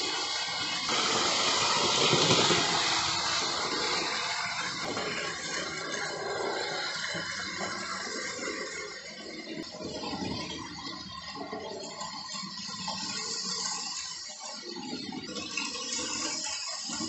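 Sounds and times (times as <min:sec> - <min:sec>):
model train rattling on track: 0:00.0 - 0:10.5.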